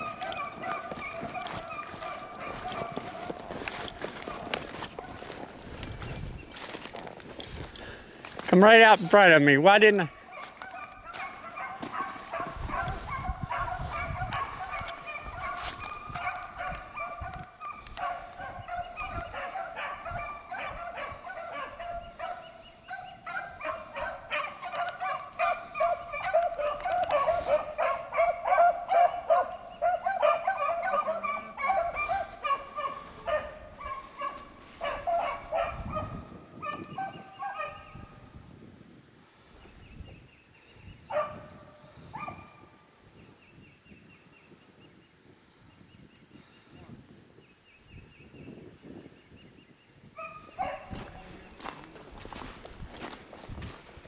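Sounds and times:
dogs baying: 0.0s - 5.6s, 10.1s - 38.1s, 41.1s - 42.6s, 50.2s - 51.5s.

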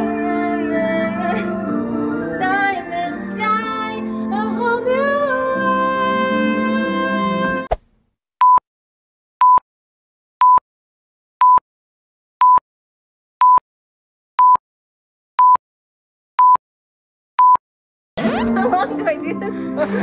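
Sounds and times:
singing with music: 0.0s - 7.7s, 18.2s - 20.0s.

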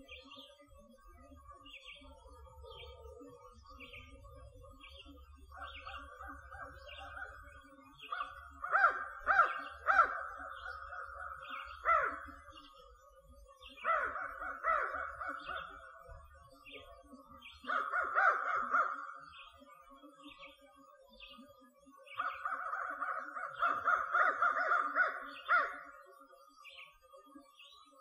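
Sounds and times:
crows cawing: 8.1s - 12.4s, 13.8s - 15.8s, 17.7s - 19.3s, 22.2s - 25.9s.

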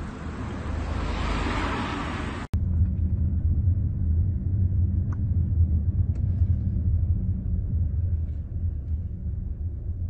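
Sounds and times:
low hum: 2.5s - 10.0s
low rumble: 2.5s - 10.0s.

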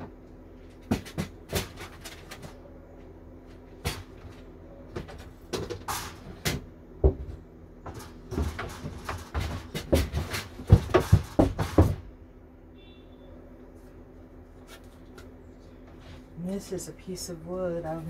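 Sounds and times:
wooden boards knocking and scraping: 5.0s - 12.1s.

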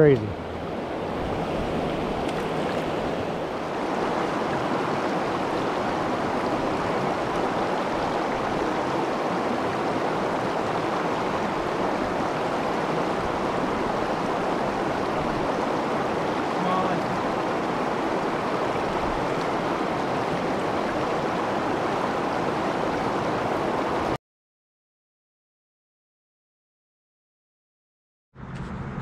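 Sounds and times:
river rushing over rocks: 0.1s - 24.2s.

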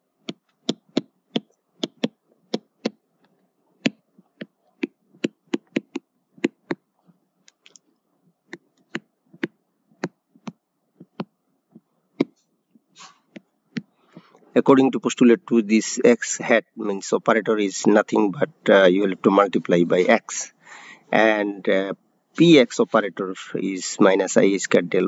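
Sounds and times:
stylus tapping on tablet: 0.2s - 6.8s, 8.5s - 14.3s.

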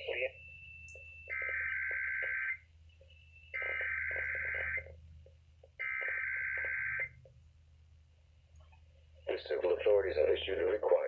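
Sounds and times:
warbling data tone bursts: 0.0s - 4.9s.

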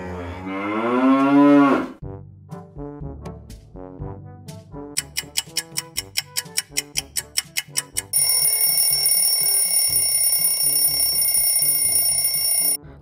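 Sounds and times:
bouncy music track: 2.4s - 13.0s
alarm clock ringing: 7.8s - 12.8s.

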